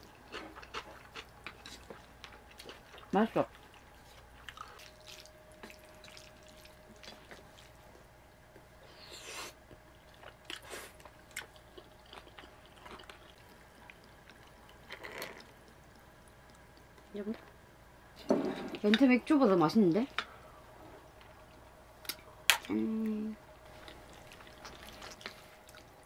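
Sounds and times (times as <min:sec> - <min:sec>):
chewing: 0:00.1 - 0:08.0, 0:09.7 - 0:17.1, 0:23.7 - 0:26.0.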